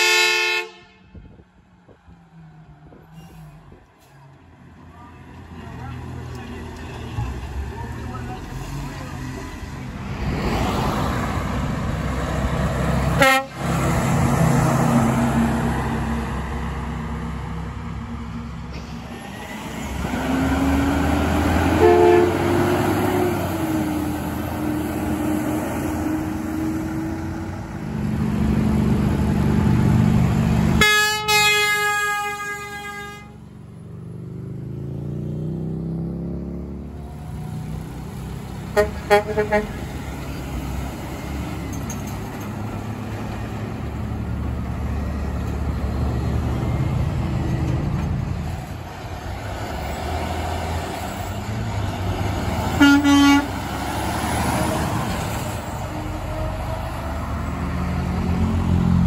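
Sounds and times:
loud clear air horn blast: 0.0s - 1.3s, 13.2s - 13.7s, 21.7s - 22.6s, 30.8s - 33.4s, 38.7s - 39.8s, 52.7s - 53.6s
diesel trucks passing: 0.0s - 59.0s
diesel engine revving: 1.9s - 59.0s
low wavering air horn: 21.8s - 22.5s, 30.8s - 33.3s, 52.8s - 53.6s.

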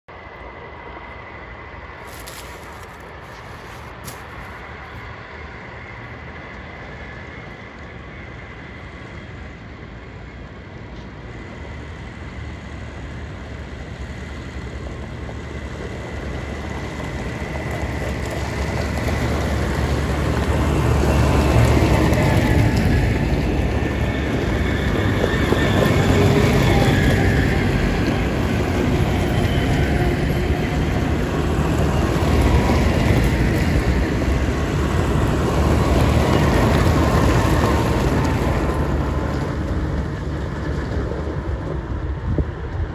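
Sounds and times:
dump trucks driving on gravel: 0.2s - 42.9s.

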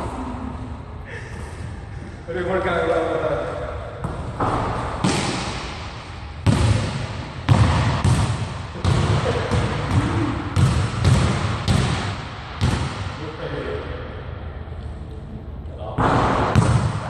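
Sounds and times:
basketball bouncing on wooden floor: 6.4s - 13.1s, 16.0s - 17.0s.

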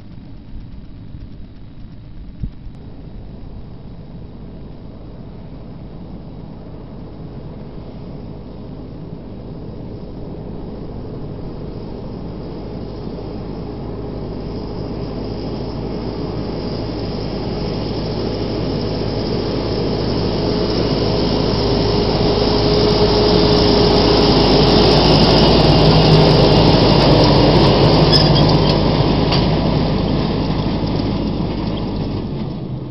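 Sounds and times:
sharp clicks: 0.0s - 2.8s
tractor engine drone: 0.0s - 32.9s.

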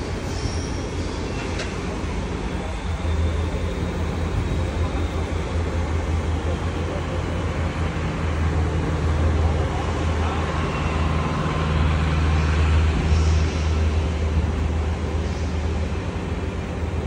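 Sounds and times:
crane engine droning: 0.0s - 17.0s.

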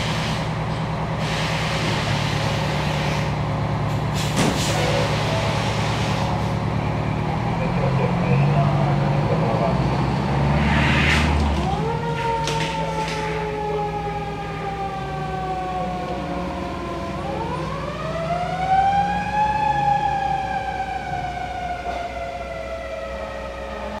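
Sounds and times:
siren wailing: 11.2s - 24.0s.

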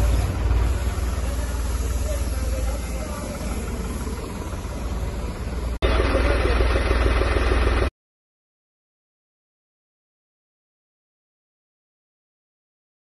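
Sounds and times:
tractor diesel engine idling: 0.0s - 7.9s.

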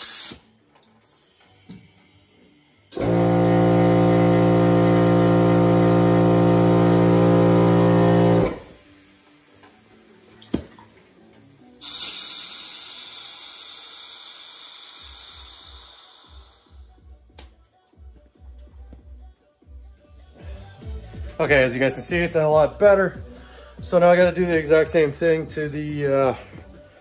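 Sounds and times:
loud hiss of air released: 0.0s - 3.2s, 11.8s - 16.9s
air compressor humming: 1.1s - 8.9s, 11.8s - 16.9s.

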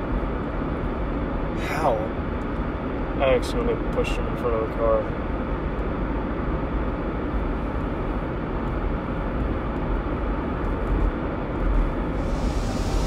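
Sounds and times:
car tyre and engine rumble: 3.2s - 13.0s.

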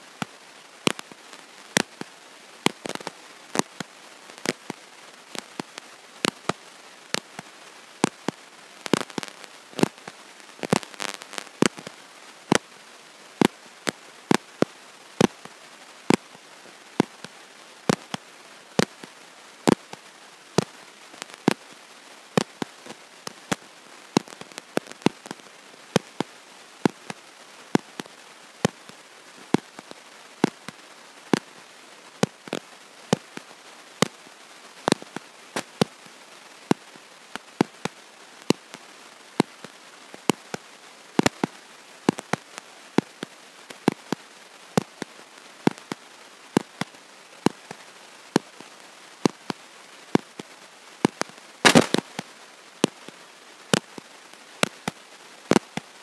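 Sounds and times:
steady hiss: 0.0s - 56.0s
sharp clicks and crackles: 2.7s - 12.8s, 34.9s - 38.8s, 44.8s - 46.0s, 51.0s - 55.9s.

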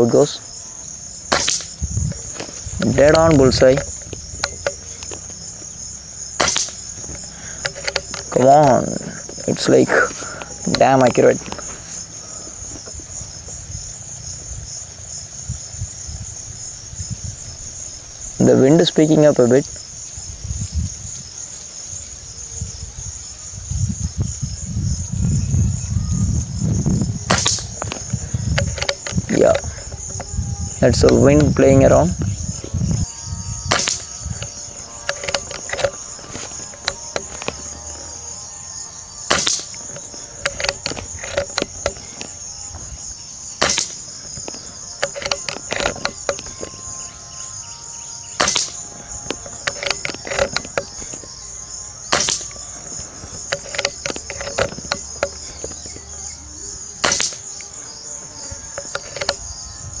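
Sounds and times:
insects chirring: 0.0s - 60.0s
air rifle shots: 1.3s - 1.8s, 6.4s - 8.4s, 27.3s - 27.8s, 33.7s - 37.6s, 39.3s - 42.2s, 43.6s - 46.6s, 48.4s - 51.2s, 52.1s - 52.6s, 57.0s - 57.5s
quiet clicks: 33.7s - 37.8s, 39.3s - 42.9s.

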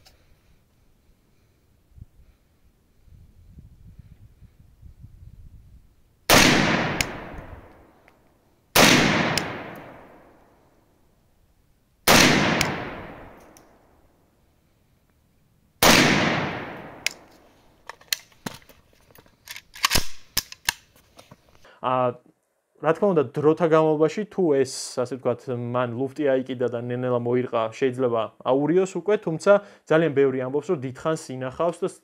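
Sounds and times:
rifle shots with echo: 6.3s - 7.9s, 8.8s - 10.3s, 12.1s - 13.6s, 15.8s - 17.3s.

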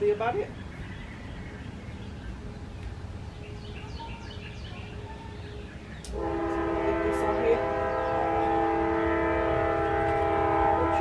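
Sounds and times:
train horn blowing: 6.1s - 11.0s.

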